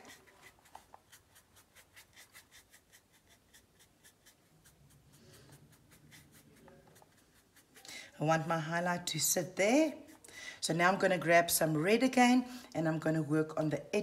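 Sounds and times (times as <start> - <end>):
brush scratching over canvas: 0.0 - 9.8.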